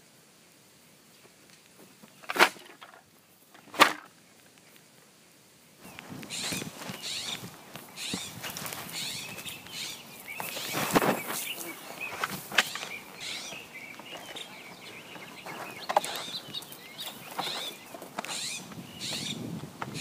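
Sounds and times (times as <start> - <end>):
soft crunching steps: 5.8 - 20.0
high bird chirps: 5.9 - 19.4.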